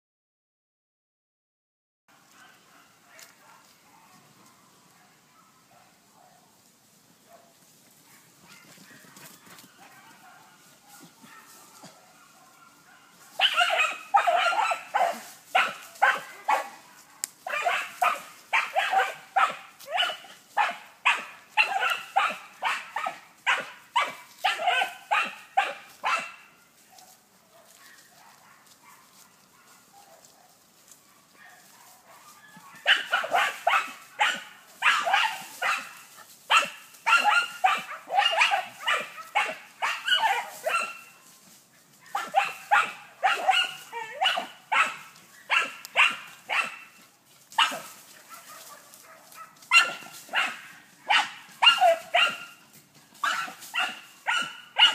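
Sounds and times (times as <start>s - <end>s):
dog barking rapidly: 8.1s - 26.5s, 31.3s - 41.1s, 42.0s - 47.0s, 47.6s - 52.6s, 53.2s - 54.9s.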